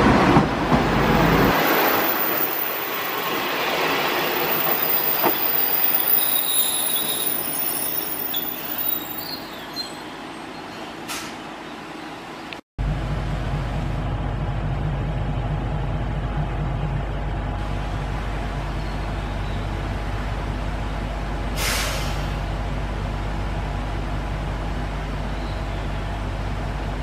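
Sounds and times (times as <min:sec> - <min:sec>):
diesel railcar engine idling: 0:04.6 - 0:27.0
brake air hiss: 0:21.6 - 0:22.5.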